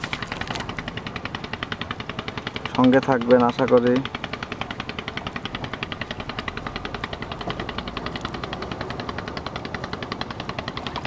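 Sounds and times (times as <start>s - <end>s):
small engine chugging: 0.0s - 11.0s.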